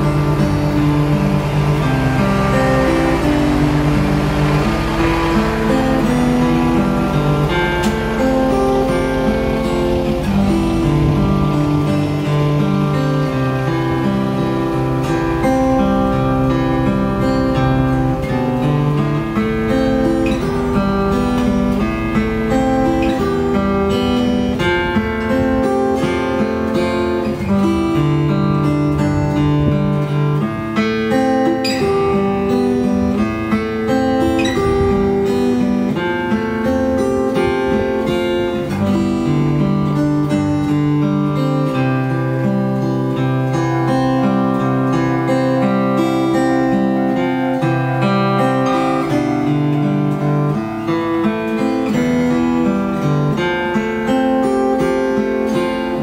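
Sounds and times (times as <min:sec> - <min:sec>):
bass line: 0:00.0 - 0:30.6
fingerpicked guitar melody: 0:00.0 - 0:56.0.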